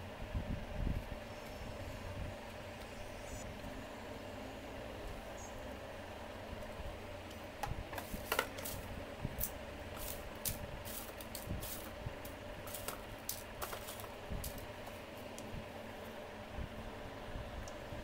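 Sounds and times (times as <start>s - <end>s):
steady low hum: 0.0s - 18.0s
plastic pipes clicking and tapping: 7.6s - 8.8s.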